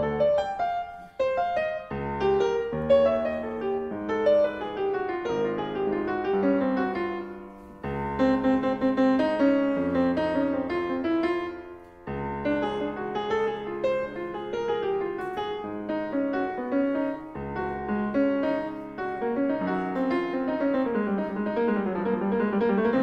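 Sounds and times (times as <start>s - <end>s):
solo piano: 0.0s - 23.0s.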